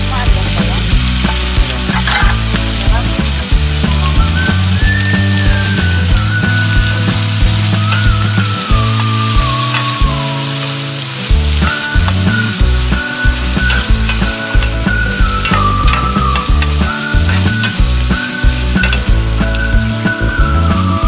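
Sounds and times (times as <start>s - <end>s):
food sizzling in a pan: 0.0s - 21.0s
music with whistled melody: 0.5s - 21.0s
metal spoon scraping a pan: 1.2s - 2.6s, 13.4s - 19.1s.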